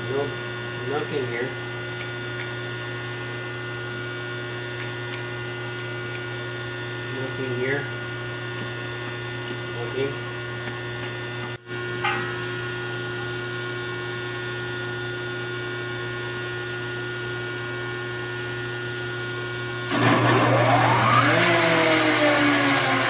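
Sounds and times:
electrical hum: 0.0 - 23.0
drill press motor spinning up: 19.7 - 23.0.

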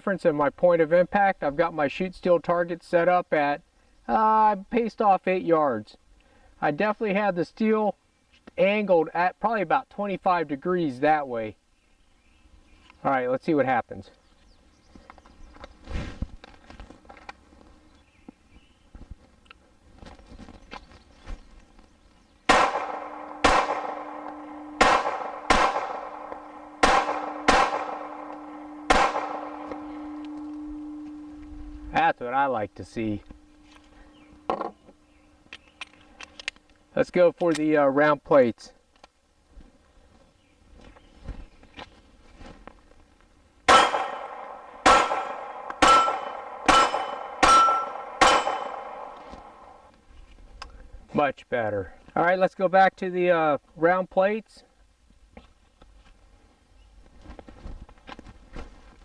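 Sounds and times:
pistol shots: 22.5 - 31.1, 43.7 - 49.8
steel target ringing: 22.5 - 31.9, 43.7 - 49.9.

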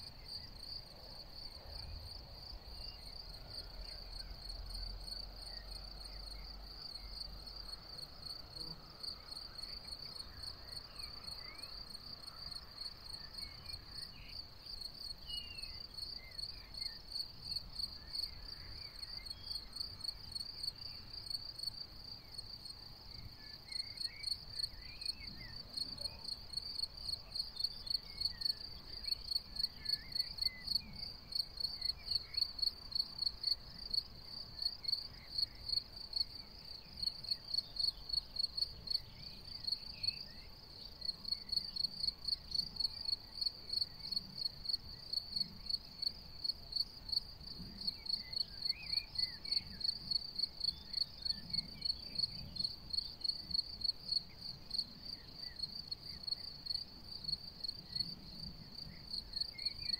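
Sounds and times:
cricket chirping: 0.0 - 59.9.

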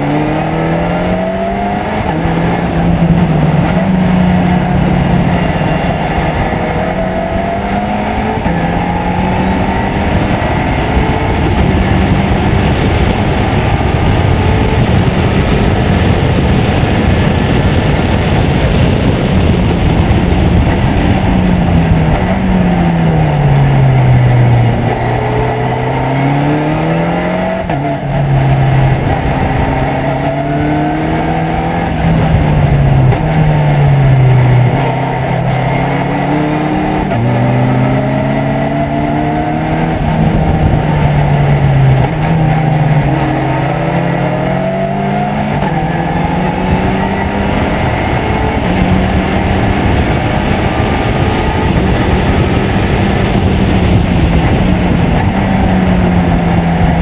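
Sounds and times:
race car engine: 0.0 - 57.0
rushing noise: 0.0 - 57.0.

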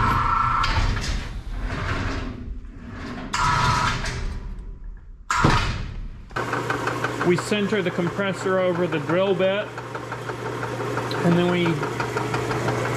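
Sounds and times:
rumbling and rattling: 0.0 - 12.9
crane hoist motor humming: 6.3 - 12.9.

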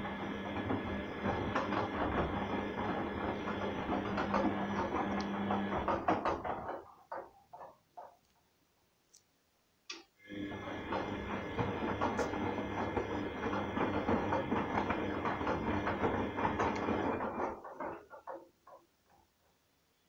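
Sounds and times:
water and laundry sloshing: 0.0 - 6.8, 10.3 - 18.2
washing machine motor humming: 0.0 - 8.1, 10.2 - 19.2.

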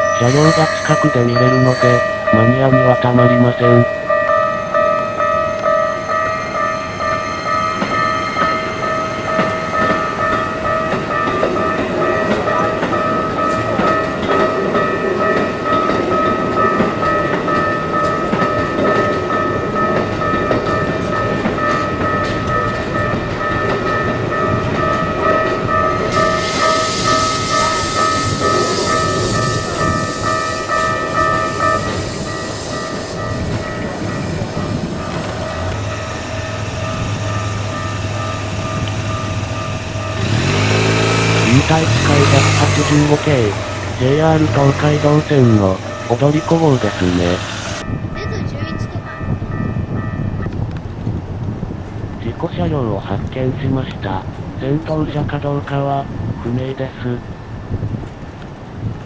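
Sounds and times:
rushing hiss of passing train: 0.0 - 3.4, 24.4 - 59.0
train wheels clattering on rail: 0.0 - 48.0
level crossing bell ringing: 0.0 - 50.4.

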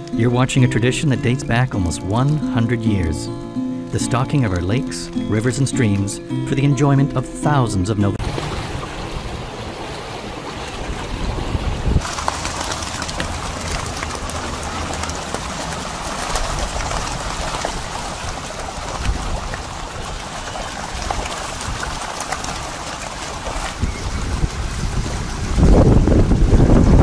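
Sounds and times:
fish thrashing and splashing: 8.2 - 26.6.

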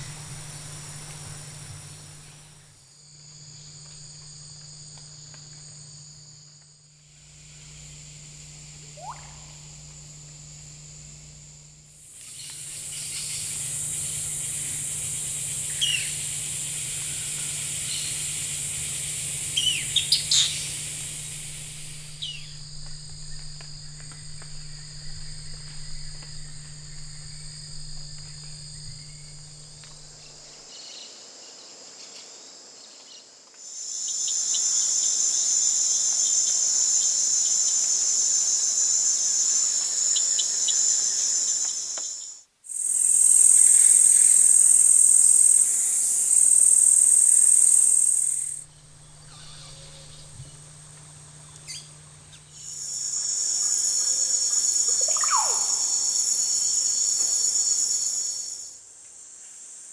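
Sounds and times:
insects droning: 0.0 - 59.9
bird chirping: 15.7 - 16.2, 19.6 - 30.9.

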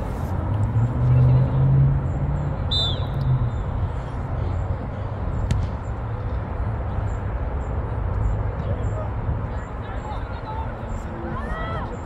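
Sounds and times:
referee's whistle blast: 2.7 - 3.3.

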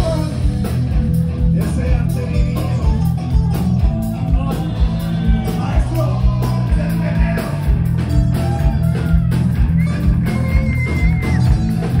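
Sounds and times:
live rock band playing: 0.0 - 12.0.

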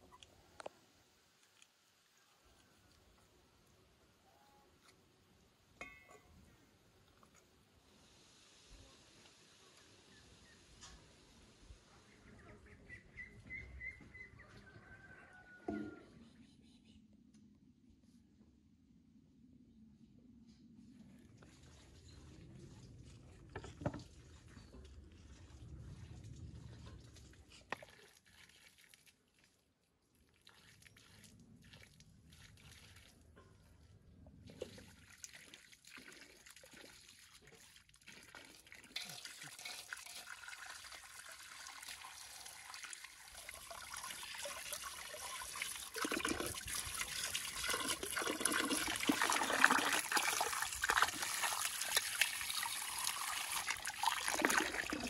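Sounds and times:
hose water splashing into metal basin: 34.5 - 55.0.

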